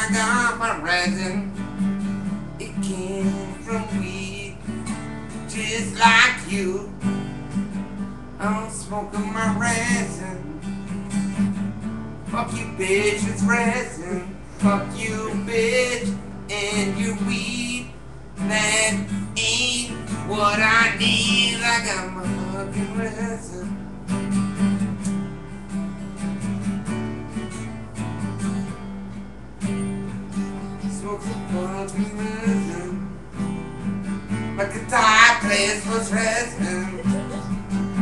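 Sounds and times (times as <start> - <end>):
acoustic guitar strumming: 0.0 - 38.0
person singing or talking: 34.6 - 37.6.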